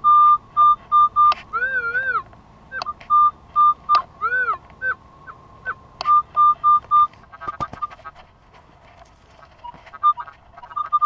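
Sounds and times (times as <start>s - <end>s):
metal detector short high beeps: 0.0s - 5.0s, 5.7s - 7.1s.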